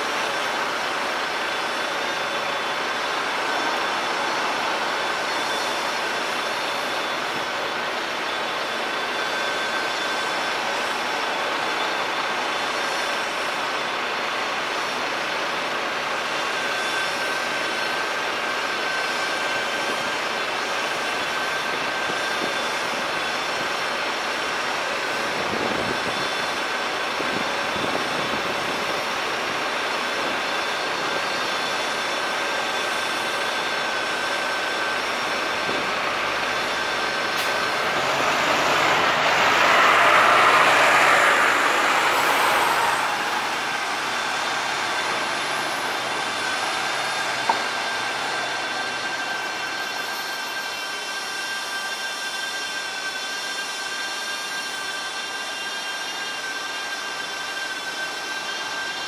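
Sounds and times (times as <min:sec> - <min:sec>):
city traffic noise: 0:00.0 - 0:50.6
vehicle passing: 0:36.8 - 0:46.4.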